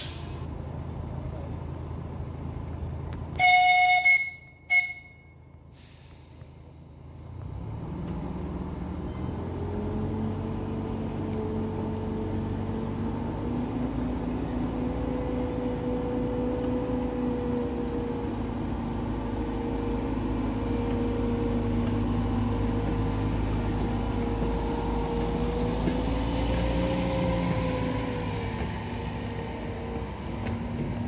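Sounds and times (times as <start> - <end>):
diesel engine pulling away: 0.0 - 4.6, 5.4 - 31.0
locomotive whistle blasts: 3.4 - 5.4.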